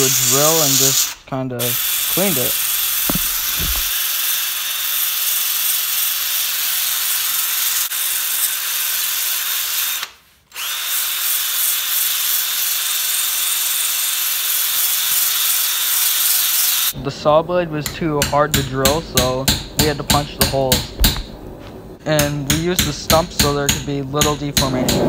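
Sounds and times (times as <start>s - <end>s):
electric drill brush whirring: 0.0s - 16.9s.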